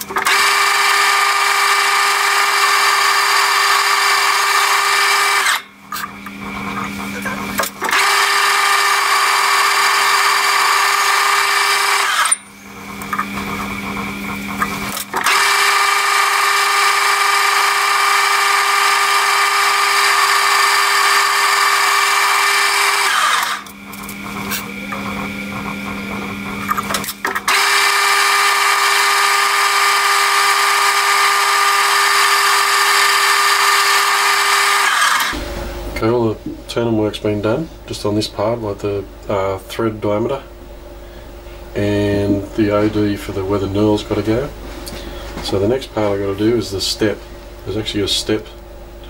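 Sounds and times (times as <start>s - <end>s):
metal lathe cutting: 0.0s - 35.4s
lathe running: 0.0s - 36.2s.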